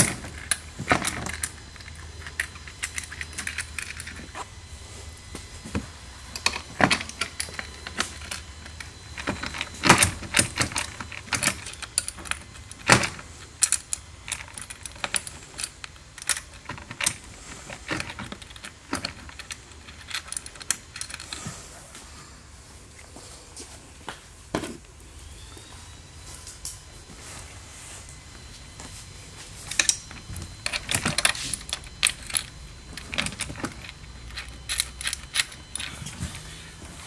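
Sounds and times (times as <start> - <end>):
metal bolts clinking and rattling: 0.0 - 4.4, 6.4 - 17.2, 17.8 - 21.3, 29.7 - 36.4.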